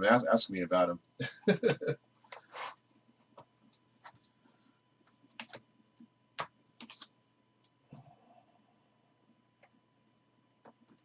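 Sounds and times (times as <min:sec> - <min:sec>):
trading cards clicking and tapping: 0:05.3 - 0:05.6.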